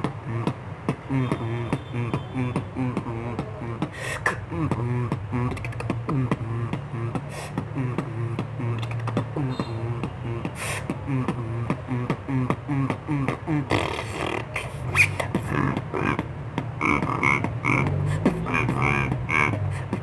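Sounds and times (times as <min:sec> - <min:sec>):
hummed bass line: 0:00.0 - 0:13.8
beatboxing drum clicks: 0:00.0 - 0:20.0.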